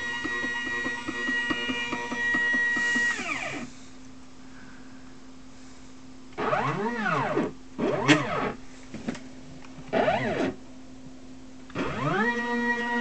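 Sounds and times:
stepper motor whine: 0.0s - 3.7s, 6.3s - 8.6s, 9.9s - 10.6s, 11.7s - 13.0s
steady low hum: 0.0s - 13.0s.

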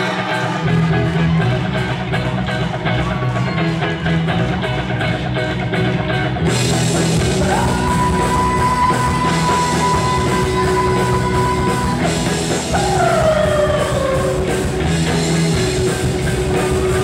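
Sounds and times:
electric guitar picking: 0.0s - 17.0s
drums with cymbals: 6.5s - 17.0s.

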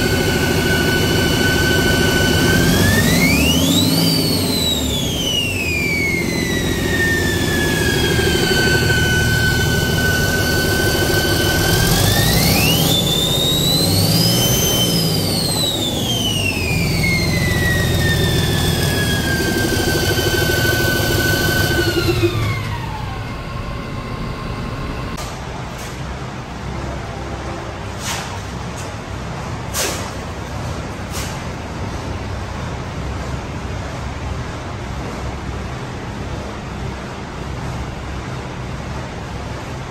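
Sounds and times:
diesel engine running: 0.0s - 25.2s
turbocharger whine: 0.0s - 25.2s.

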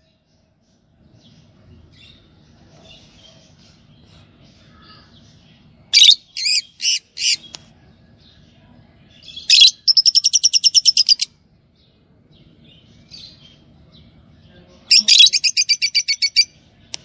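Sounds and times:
lovebirds shrill calls: 5.9s - 7.6s, 9.2s - 11.3s, 14.9s - 16.6s.

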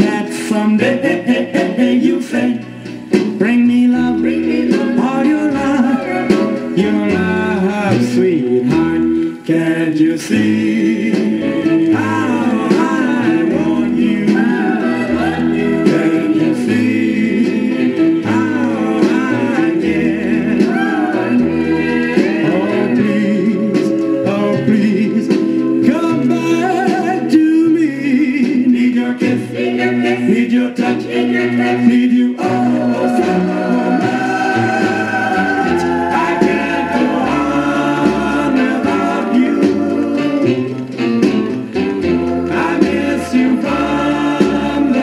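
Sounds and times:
vocal group singing: 0.0s - 45.0s
bass line: 31.1s - 45.0s.

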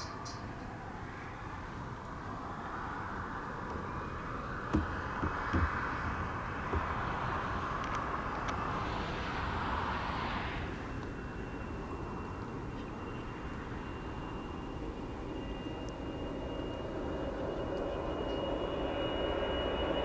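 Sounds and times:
distant jet engines: 0.0s - 20.0s
soft low knocks: 4.7s - 5.9s.

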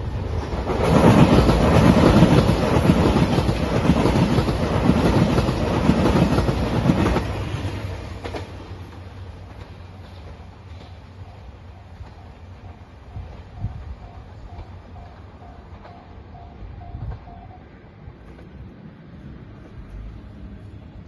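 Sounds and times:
diesel train engines running: 0.0s - 21.0s
train wheels clattering over rail joints: 0.3s - 11.1s.

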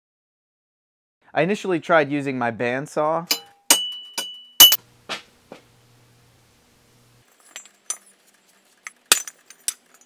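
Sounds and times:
metal pieces clinking and knocking: 3.3s - 4.8s, 7.3s - 10.0s
sharp metallic clack: 3.3s - 5.2s.

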